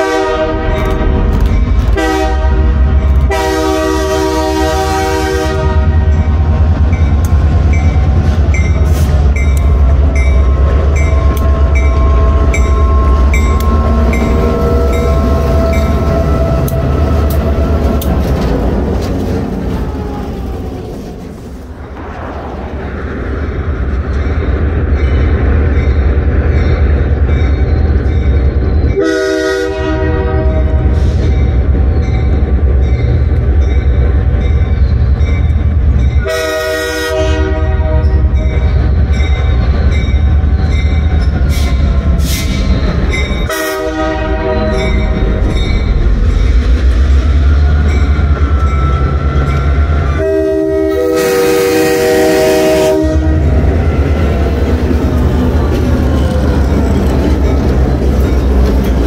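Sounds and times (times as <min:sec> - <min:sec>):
train horn blasts: 0:00.0 - 0:01.1, 0:01.9 - 0:06.2, 0:10.4 - 0:17.7, 0:28.9 - 0:31.1, 0:36.2 - 0:38.4, 0:43.4 - 0:45.1, 0:48.9 - 0:54.2
diesel locomotive engine rumble: 0:00.0 - 0:59.0.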